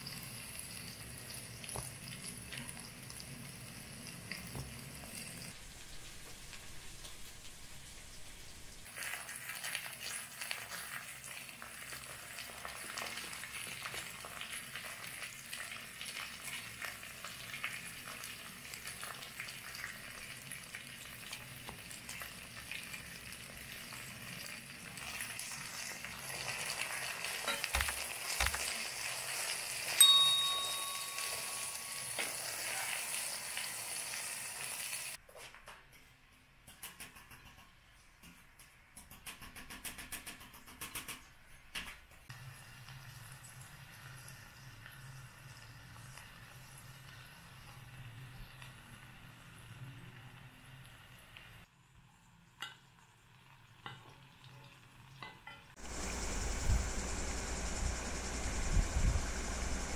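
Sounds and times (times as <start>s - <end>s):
pot sizzling on gas burner: 0.0s - 35.2s, 42.3s - 59.9s
ringing metal clink: 30.0s - 32.7s.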